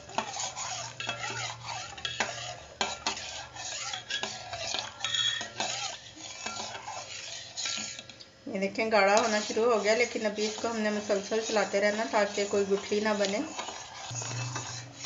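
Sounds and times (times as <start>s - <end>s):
metal spoon scraping saucepan: 0.0s - 8.2s, 8.8s - 15.0s
low steady hum: 14.1s - 15.0s.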